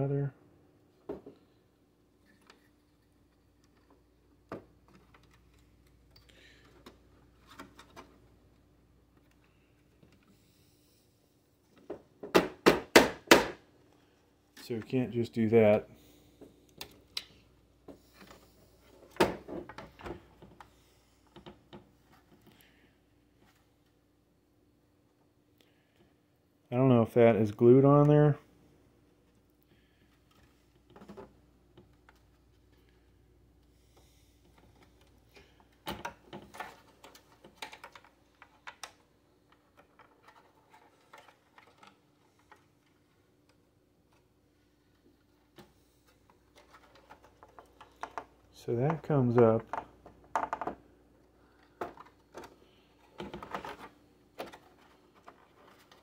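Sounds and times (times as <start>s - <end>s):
clicks and knocks inside computer: 48.9s - 50.8s.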